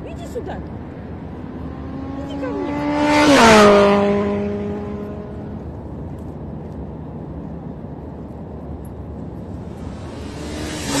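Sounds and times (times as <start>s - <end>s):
vehicle passing at speed: 0.0s - 5.8s, 9.2s - 11.0s.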